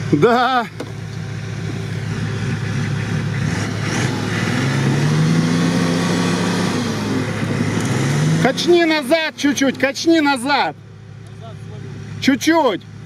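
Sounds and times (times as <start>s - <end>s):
off-road vehicle engine revving: 0.0s - 13.0s.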